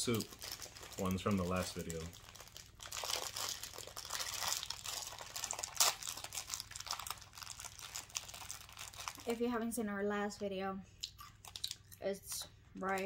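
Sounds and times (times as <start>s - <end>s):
foil snack packet crinkling: 0.0s - 9.5s.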